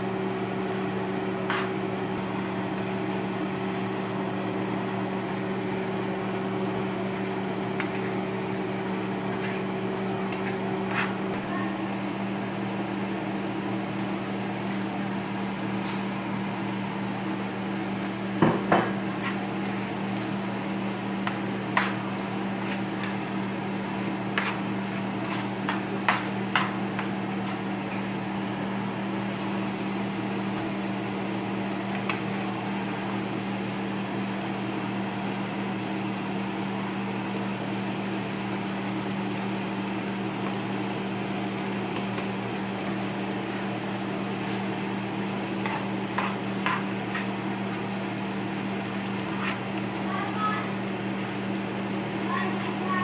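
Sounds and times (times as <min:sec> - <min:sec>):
tongs clacking against a skillet: 0:24.2 - 0:28.1, 0:44.4 - 0:48.0.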